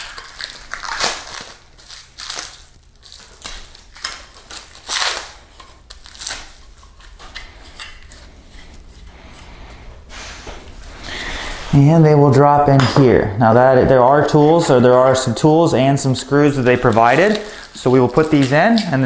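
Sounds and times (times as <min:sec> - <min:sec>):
plastic wrap crinkling and tearing: 0:00.0 - 0:08.9, 0:16.2 - 0:19.0.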